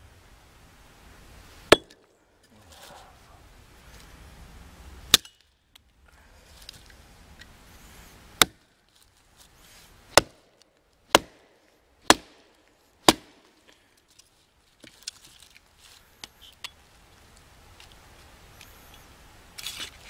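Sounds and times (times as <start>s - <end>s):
hatchet chopping wood: 1.7s - 2.0s, 8.4s - 8.6s, 10.1s - 10.5s, 11.1s - 13.5s.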